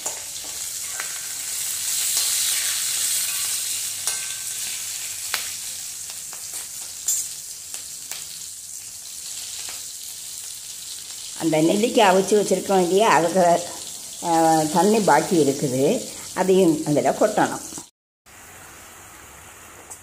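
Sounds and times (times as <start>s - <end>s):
frying in hot oil sizzling: 0.0s - 20.0s.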